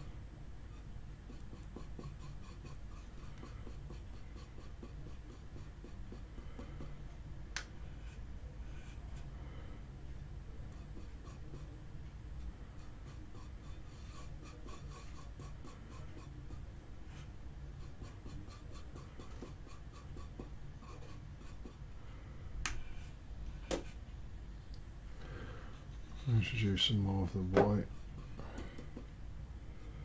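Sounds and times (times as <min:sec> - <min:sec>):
paintbrush scratching in metal bowl: 0:00.7 - 0:06.2, 0:10.7 - 0:11.8, 0:12.7 - 0:21.8, 0:25.8 - 0:28.4.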